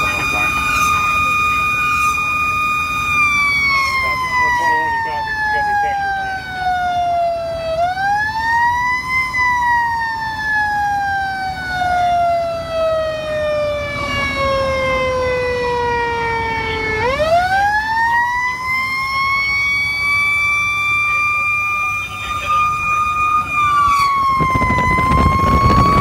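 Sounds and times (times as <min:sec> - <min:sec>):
fire engine siren wailing: 0:00.0 - 0:26.0
road noise: 0:00.0 - 0:26.0
truck engine: 0:00.0 - 0:26.0.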